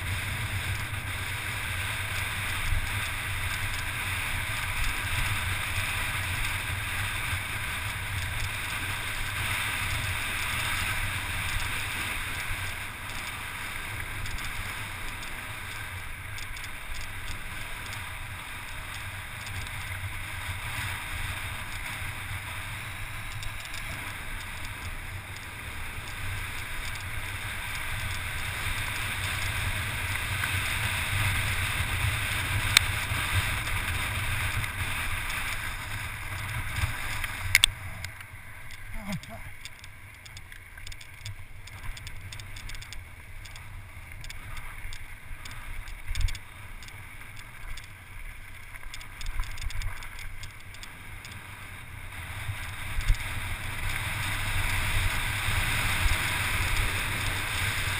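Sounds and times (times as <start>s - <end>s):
wheels rolling over gravel: 0.0s - 57.9s
sharp click: 37.2s - 43.6s.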